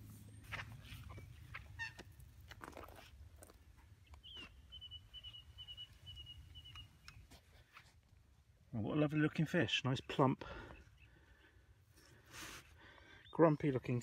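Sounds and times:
bird trilling: 4.1s - 7.1s.

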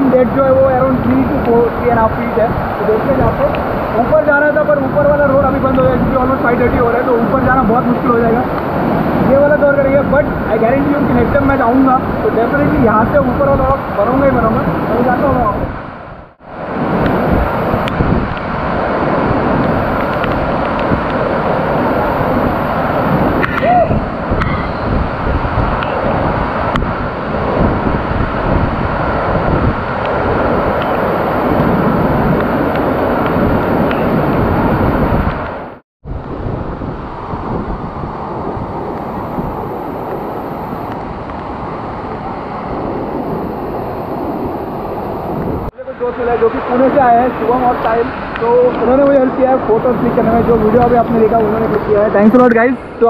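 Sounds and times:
waterfall rushing: 0.0s - 35.8s, 38.0s - 53.0s.

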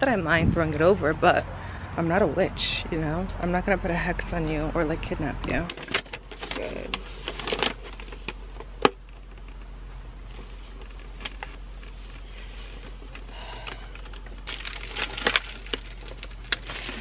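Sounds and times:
paper and plastic rustling: 5.6s - 9.7s, 13.9s - 17.0s.

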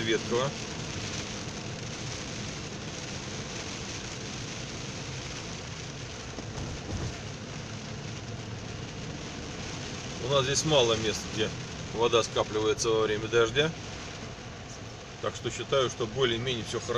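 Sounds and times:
heavy rain on car roof: 0.0s - 16.9s.

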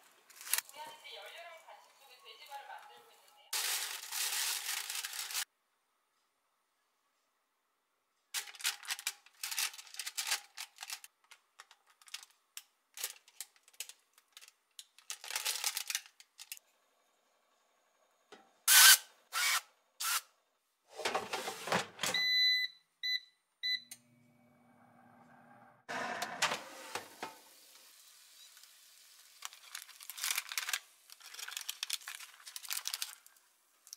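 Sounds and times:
basket sliding into air fryer: 20.9s - 22.1s, 25.9s - 27.6s
air fryer panel beeping: 22.0s - 24.0s
tongs rustling and clicking: 29.4s - 33.9s.

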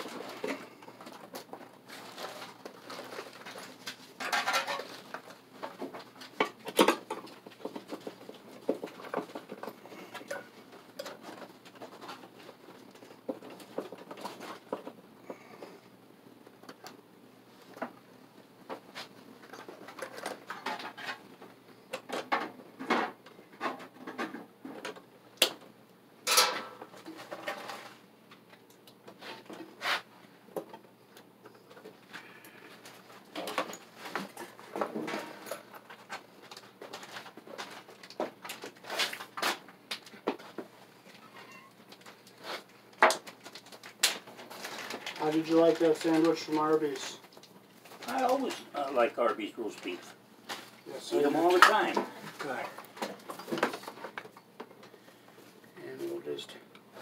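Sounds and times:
stiff wires scratching and rustling: 0.0s - 15.8s, 28.9s - 30.8s, 31.5s - 55.0s.

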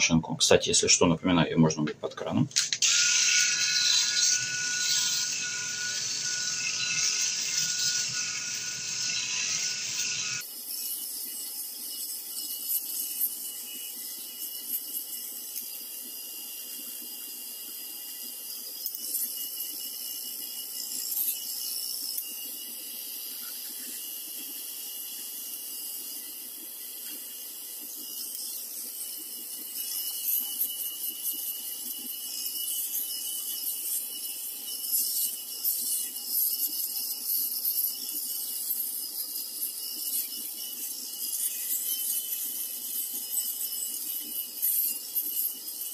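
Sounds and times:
electric shaver cutting stubble: 2.6s - 45.9s.

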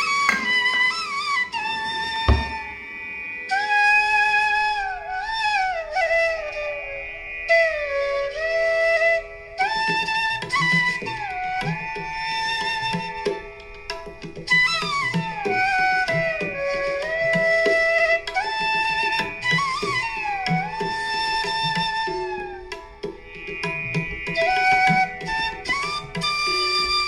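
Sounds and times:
flute melody: 0.0s - 2.9s, 3.5s - 27.0s
tabla drumming: 0.2s - 1.0s, 2.3s - 2.8s.

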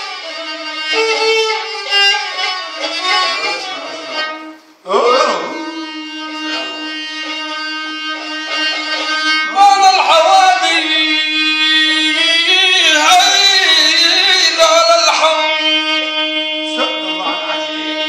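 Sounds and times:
bowed fiddle: 0.0s - 18.0s
man singing loudly: 9.5s - 18.0s.

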